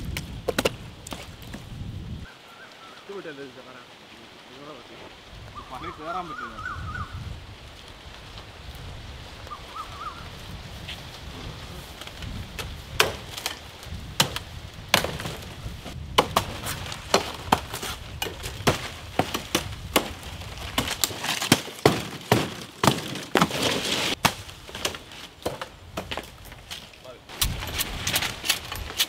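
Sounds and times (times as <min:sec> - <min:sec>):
fronds rustling: 0:00.0 - 0:29.0
machete chopping stalks: 0:12.0 - 0:29.0.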